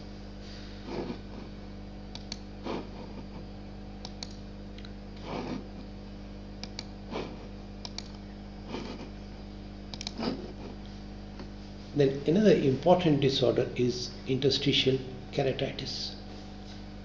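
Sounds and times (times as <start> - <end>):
electrical hum: 0.0 - 17.0
soft puffs of noise: 0.3 - 1.5
computer mouse clicks: 2.1 - 2.5, 4.0 - 5.0, 6.6 - 7.0, 7.8 - 8.2, 9.9 - 10.3.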